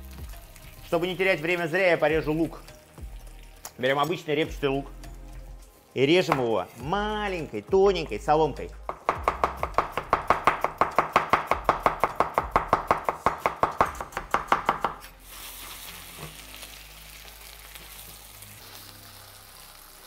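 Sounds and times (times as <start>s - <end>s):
potatoes sizzling in oil: 0.0s - 7.6s, 15.0s - 20.0s.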